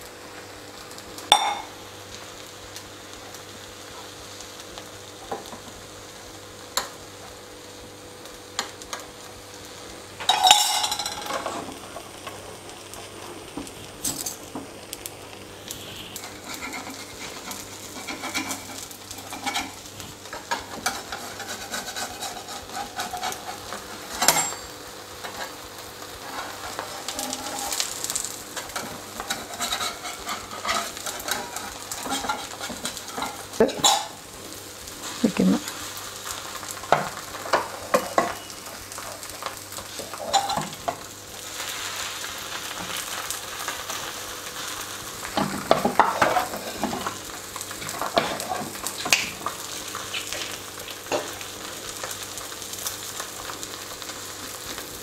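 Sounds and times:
egg sizzling in a pan: 0:00.0 - 0:55.0
utensil tapping and scraping pan: 0:16.2 - 0:25.6, 0:26.2 - 0:27.9, 0:28.6 - 0:34.1, 0:45.4 - 0:47.2.

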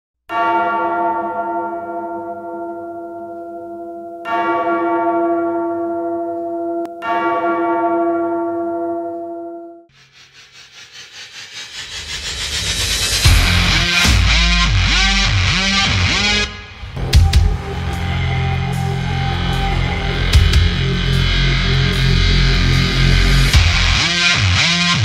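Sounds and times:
deep church bell tolling: 0:00.3 - 0:09.9, 0:13.3 - 0:24.0
pulsing fluttering noise: 0:09.9 - 0:14.1.

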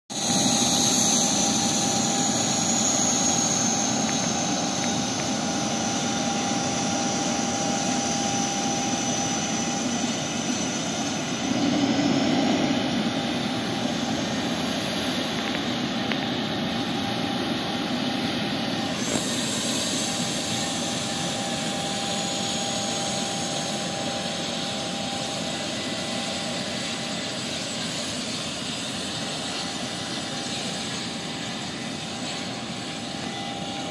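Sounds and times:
high turbine whine: 0:00.1 - 0:33.9
jet engines roaring: 0:00.1 - 0:33.9
steady low tone: 0:10.8 - 0:16.2.

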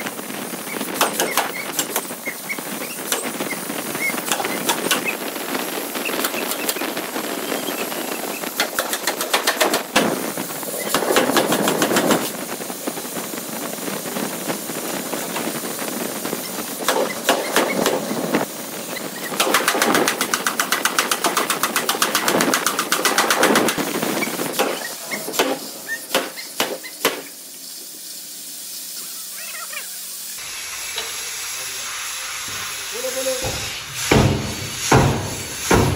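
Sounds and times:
workshop machinery noise: 0:00.0 - 0:35.9
power hammer striking steel: 0:01.0 - 0:02.1, 0:08.6 - 0:10.2, 0:16.9 - 0:18.0, 0:19.4 - 0:23.8, 0:24.6 - 0:27.3, 0:33.4 - 0:35.9.

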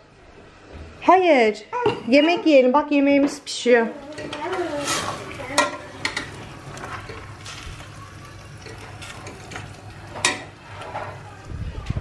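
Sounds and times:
spoon stirring stew: 0:04.0 - 0:11.3.

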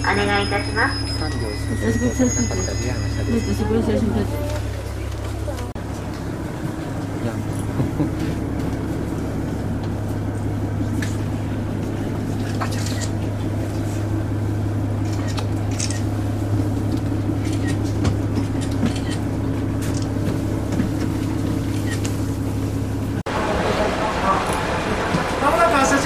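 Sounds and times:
diesel railcar idling: 0:00.0 - 0:26.0.

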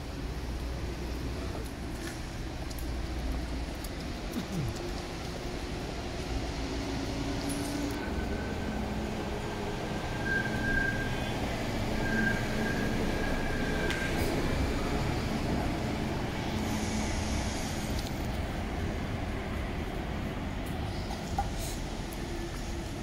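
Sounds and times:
tram rumbling on rails: 0:00.0 - 0:23.0
tram wheels squealing: 0:06.9 - 0:18.3.

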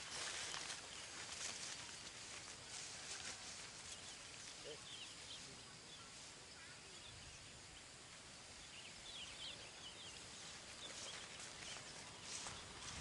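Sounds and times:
faint high bird chirps: 0:03.2 - 0:07.9.

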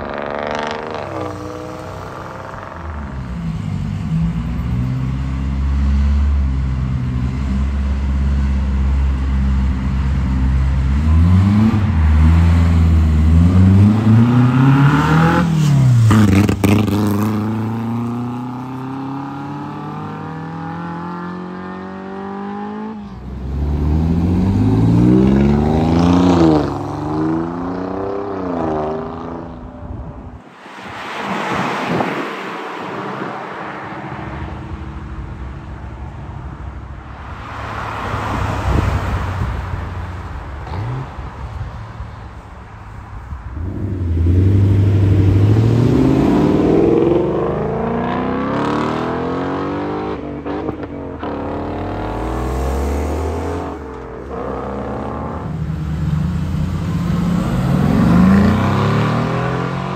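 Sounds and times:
sports car engines accelerating: 0:00.0 - 0:59.9
engine revving: 0:43.9 - 0:59.9.

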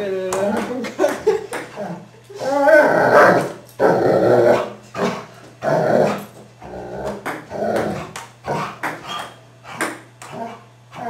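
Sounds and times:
dog growling: 0:01.7 - 0:11.0.

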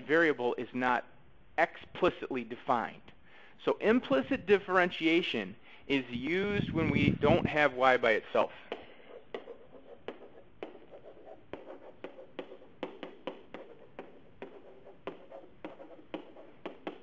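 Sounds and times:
stylus tapping: 0:08.6 - 0:17.0
pen scratching: 0:08.7 - 0:17.0.

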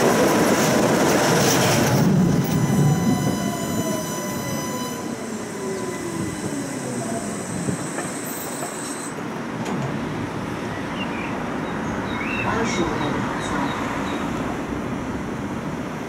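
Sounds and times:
tram motor whine: 0:00.0 - 0:10.5
tram running on rails: 0:00.0 - 0:16.0
tram rushing past: 0:00.0 - 0:16.0.

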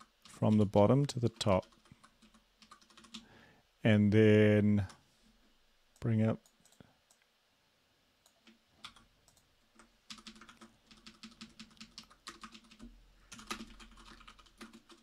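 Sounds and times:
typing on keyboard: 0:00.0 - 0:00.7, 0:01.3 - 0:03.2, 0:08.3 - 0:15.0.

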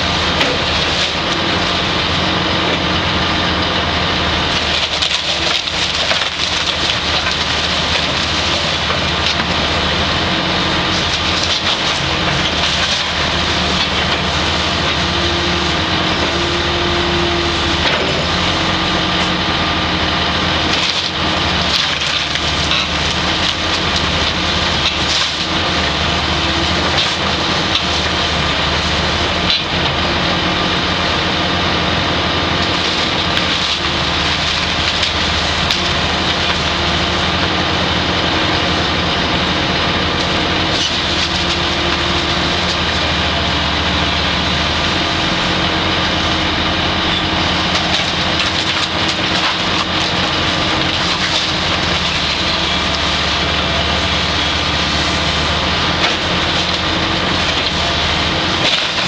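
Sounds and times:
diesel excavator engine running: 0:00.0 - 0:59.0
timber cracking and splintering: 0:04.5 - 0:15.6, 0:20.6 - 0:30.1, 0:32.6 - 0:37.4, 0:47.0 - 0:59.0.

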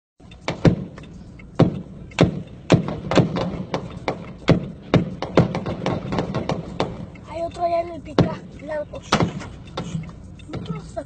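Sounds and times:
gunshots: 0:01.6 - 0:07.0.

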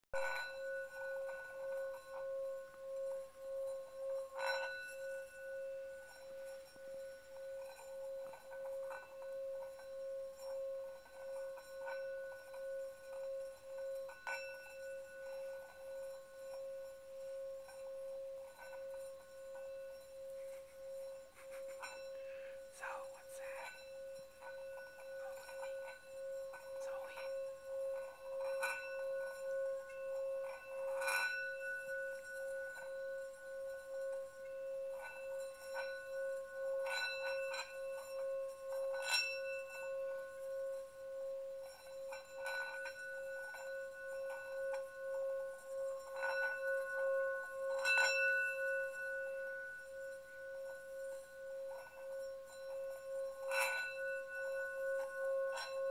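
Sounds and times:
singing bowl humming: 0:00.1 - 0:55.9
singing bowl strike ringing: 0:00.2 - 0:55.9.

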